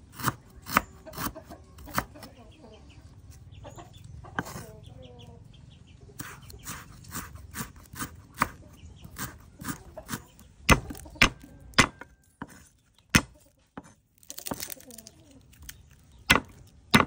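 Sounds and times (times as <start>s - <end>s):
knife chopping on wooden board: 0.1s - 2.2s, 4.4s - 4.6s, 6.2s - 14.7s, 16.3s - 17.0s.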